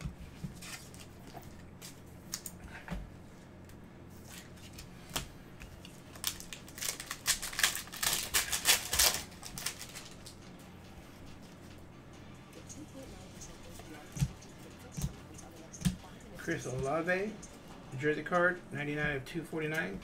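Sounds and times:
card pack wrapper crinkling: 6.1 - 10.4.

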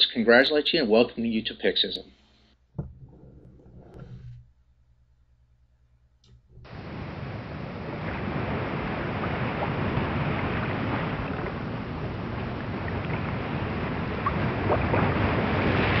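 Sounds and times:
ocean waves washing: 6.6 - 16.0.

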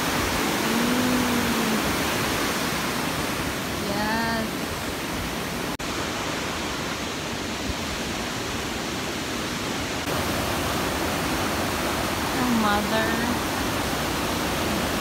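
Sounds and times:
river rushing through rapids: 0.0 - 15.0.

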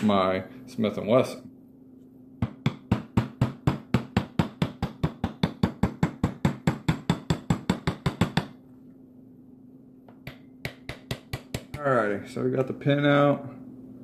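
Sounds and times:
hammer tapping metal punch: 2.4 - 8.6, 10.1 - 11.8.

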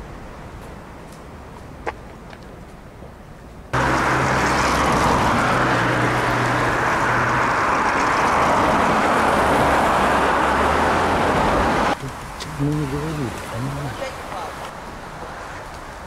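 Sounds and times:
road traffic noise: 0.0 - 16.0
car passing close by: 3.8 - 12.0.

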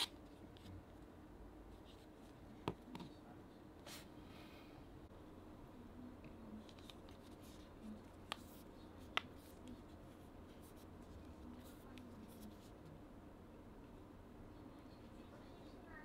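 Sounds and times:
vinyl figure rustling and scraping: 6.6 - 12.9.

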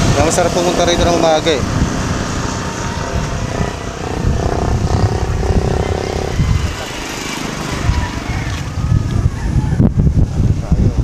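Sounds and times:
wind rumble on microphone: 0.0 - 11.0
motorcycle engine passing: 0.3 - 8.8.

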